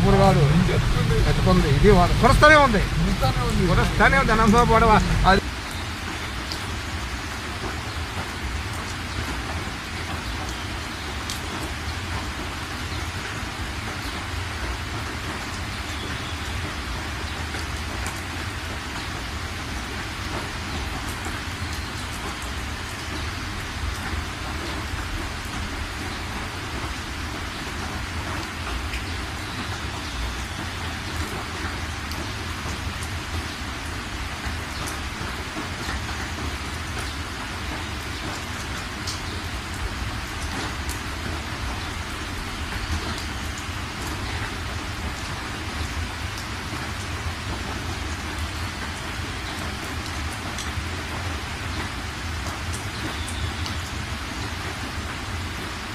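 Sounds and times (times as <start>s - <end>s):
low rumble: 0.0s - 5.4s
heavy rain on car: 0.0s - 55.9s.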